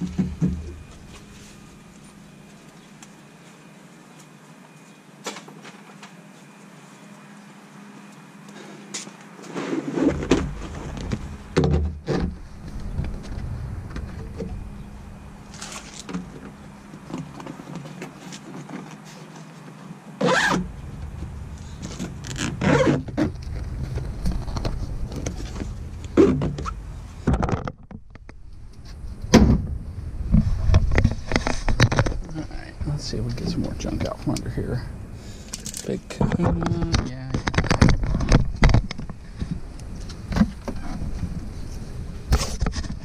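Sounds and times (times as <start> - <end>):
low rumble: 10.7 - 16.8, 20.6 - 27.4, 28.0 - 42.3.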